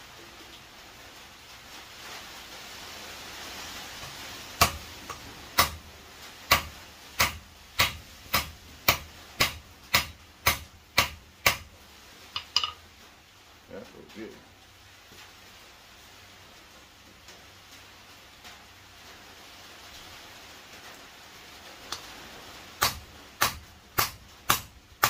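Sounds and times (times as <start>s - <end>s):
faint hiss: 0.0s - 25.0s
hammer striking steel on anvil: 4.6s - 5.8s, 6.5s - 11.7s, 12.4s - 12.8s, 22.8s - 24.7s.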